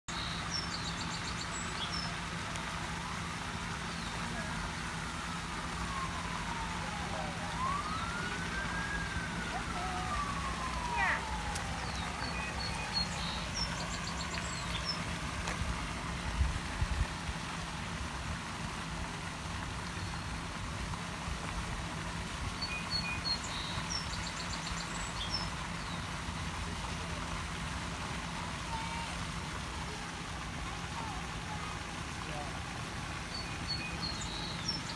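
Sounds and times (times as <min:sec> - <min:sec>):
songbird chirping: 0:05.9 - 0:15.2.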